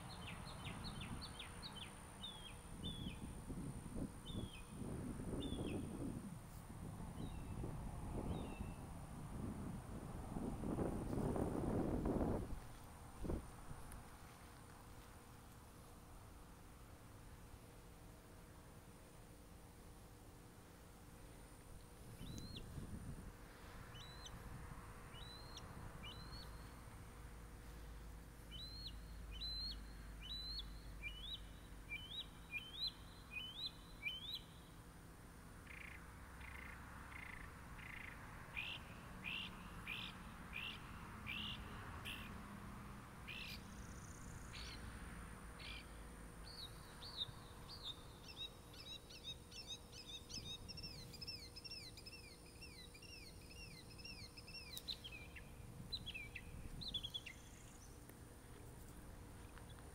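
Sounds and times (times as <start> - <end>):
small songbirds singing: 0.0 - 6.2, 7.1 - 9.5, 21.8 - 22.9, 23.6 - 24.4, 25.1 - 26.8, 28.5 - 34.8, 35.6 - 42.4, 43.2 - 44.9, 45.6 - 58.2.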